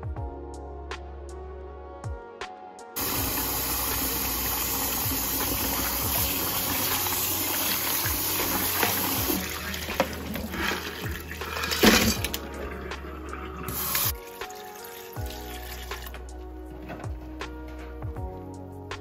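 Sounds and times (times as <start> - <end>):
tap running into pot of water: 4.9 - 12.6
water splashing with knocks in pot: 5.0 - 16.3.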